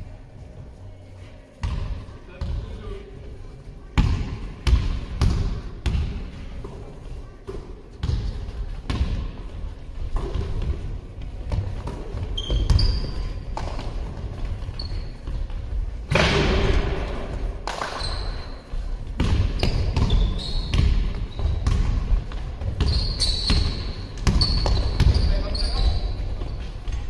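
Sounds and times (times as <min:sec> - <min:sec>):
sneakers squeaking on court: 0:08.0 - 0:09.3, 0:10.0 - 0:15.8, 0:17.7 - 0:27.0
basketball bouncing on floor: 0:11.5 - 0:14.2, 0:19.2 - 0:25.3.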